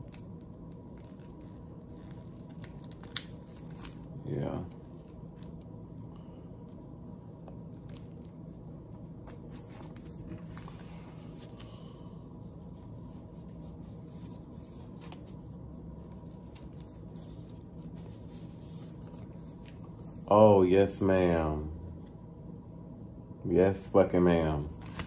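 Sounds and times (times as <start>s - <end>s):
glossy paper crinkling: 0.0s - 5.8s, 7.6s - 20.3s
steady low hum: 0.0s - 25.0s.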